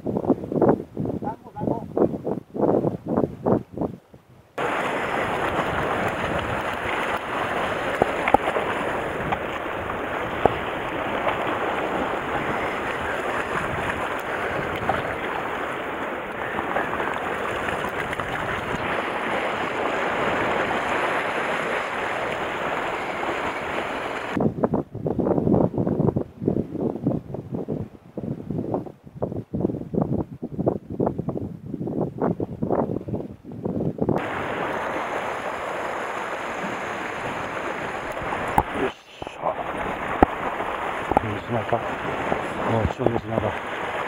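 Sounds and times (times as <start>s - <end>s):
wind on microphone: 0.0s - 44.0s
sea surf against rocks: 4.6s - 25.4s, 34.1s - 44.0s.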